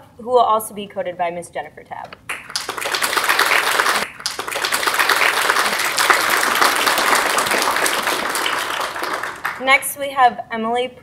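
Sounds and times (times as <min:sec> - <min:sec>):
audience applauding: 0:02.3 - 0:09.8.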